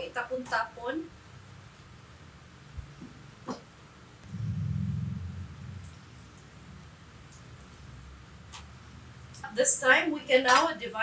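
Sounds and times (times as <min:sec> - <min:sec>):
low hum: 0:04.2 - 0:07.4.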